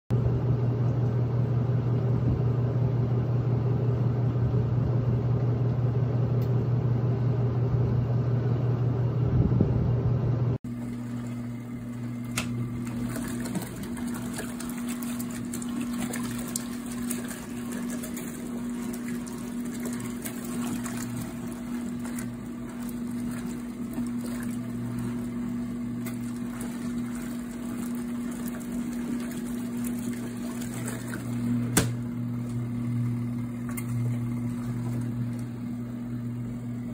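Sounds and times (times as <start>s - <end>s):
washing machine motor humming: 0.1s - 36.9s
agitator churning clothes in water: 10.6s - 36.9s.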